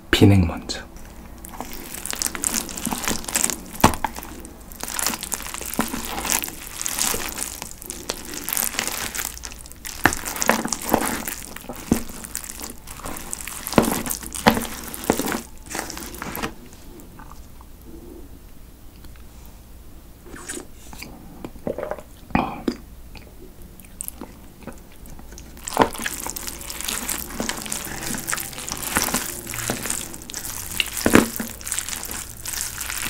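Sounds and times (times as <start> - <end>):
chopsticks mixing noodles in plastic tub: 1.0 - 16.6, 25.3 - 33.0.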